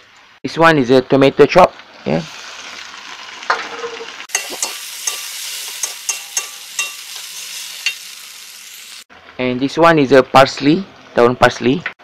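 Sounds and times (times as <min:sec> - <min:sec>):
tomatoes sizzling in hot oil: 0:01.7 - 0:09.1.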